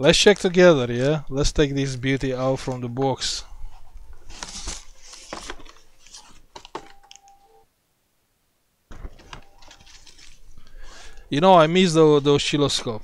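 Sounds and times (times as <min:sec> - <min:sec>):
packaging rustling and crinkling: 0:03.7 - 0:07.2, 0:09.1 - 0:11.2.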